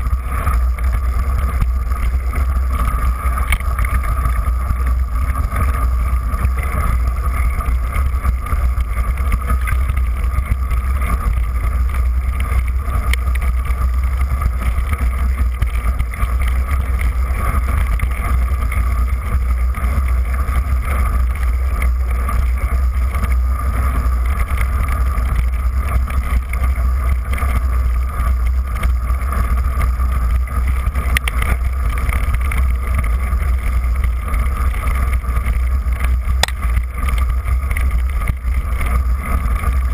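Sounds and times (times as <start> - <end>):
bike trail vibration rumble: 0.0 - 39.9.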